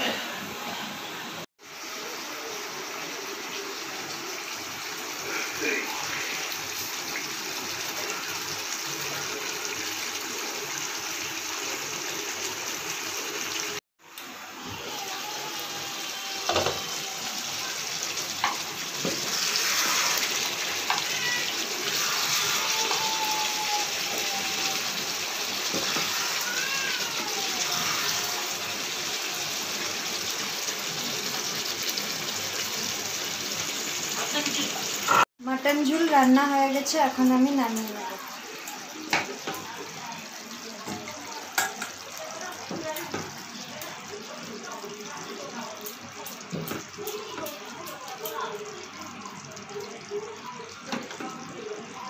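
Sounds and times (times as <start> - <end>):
spatula scraping pan: 18.4 - 24.2.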